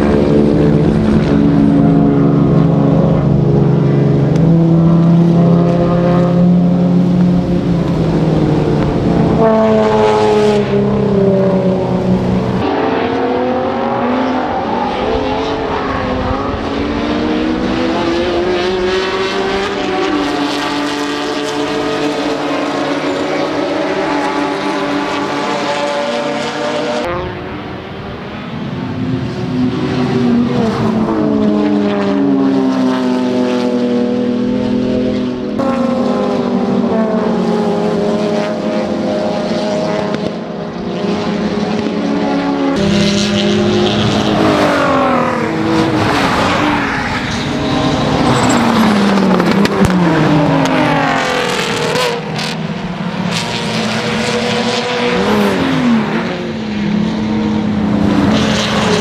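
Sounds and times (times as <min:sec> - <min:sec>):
race cars passing at speed: 0:00.0 - 0:59.0.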